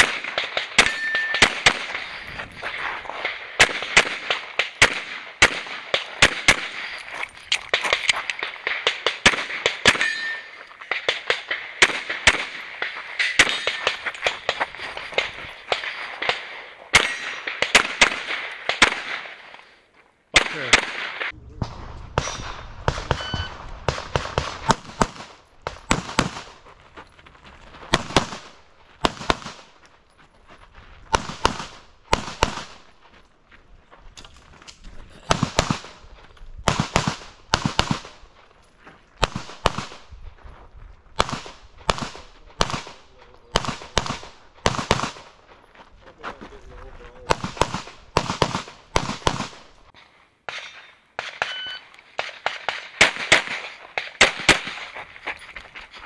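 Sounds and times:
pistol shots: 0:00.0 - 0:19.6, 0:20.4 - 0:21.3, 0:22.2 - 0:26.6, 0:27.9 - 0:29.8, 0:31.1 - 0:32.9, 0:36.6 - 0:38.2, 0:41.2 - 0:45.4, 0:47.2 - 0:49.8, 0:50.5 - 0:55.0.

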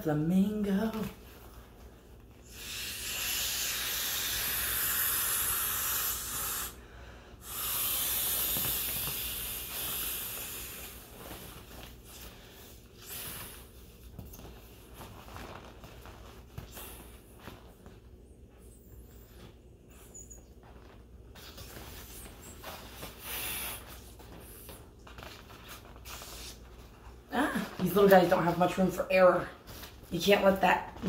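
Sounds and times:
breath blown through valve: 0:02.5 - 0:11.1.

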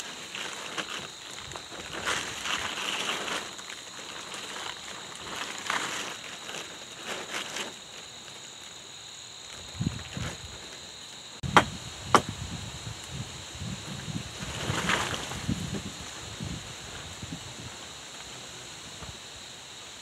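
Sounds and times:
high-pitched insect drone: 0:00.0 - 0:20.0
dull thumps: 0:11.4 - 0:12.4.

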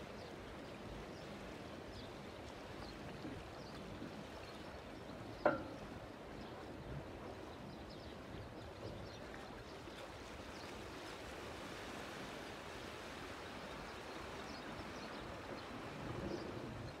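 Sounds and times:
river water flowing: 0:00.0 - 0:17.0.

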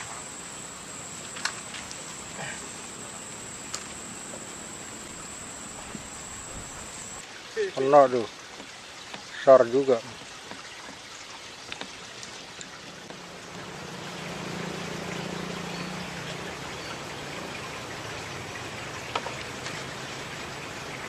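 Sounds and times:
faint low hum: 0:00.0 - 0:07.2
steady outdoor hiss: 0:00.0 - 0:21.0.

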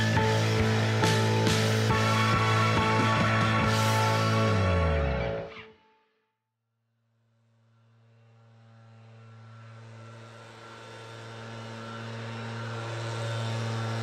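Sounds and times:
leaf blower engine running: 0:00.0 - 0:04.9, 0:08.6 - 0:14.0.

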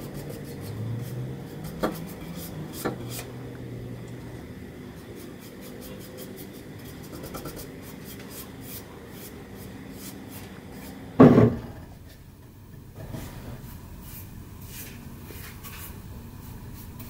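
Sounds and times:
paintbrush brushing on wood: 0:00.0 - 0:03.4, 0:05.0 - 0:11.0, 0:13.1 - 0:17.0
loud dull thump: 0:11.2 - 0:11.9.

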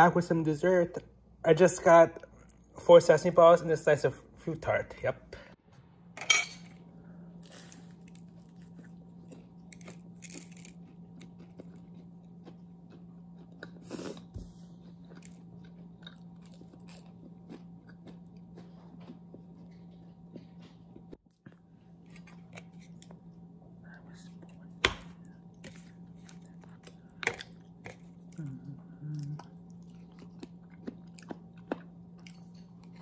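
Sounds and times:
low hum: 0:00.0 - 0:33.0
biting and chewing crunchy food: 0:07.4 - 0:33.0.

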